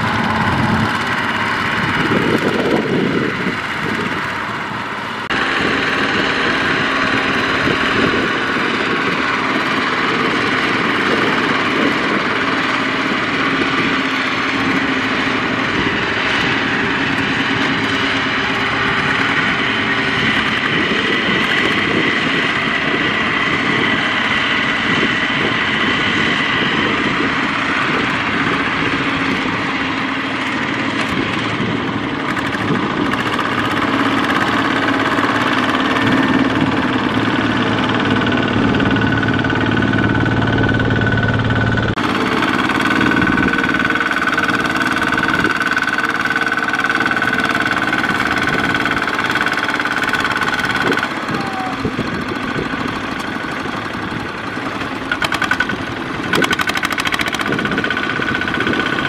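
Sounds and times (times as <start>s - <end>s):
diesel tractor engine running: 0.0s - 59.0s.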